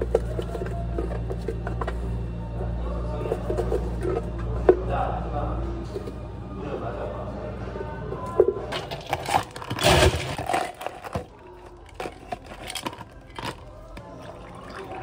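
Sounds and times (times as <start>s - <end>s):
ice cubes rattling into plastic cups: 8.7s - 15.0s.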